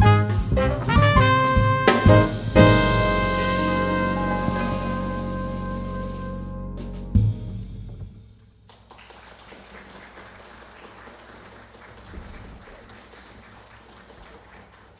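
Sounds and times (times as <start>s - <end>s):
jazz quartet final note: 0.0s - 8.2s
audience applauding: 8.6s - 14.9s.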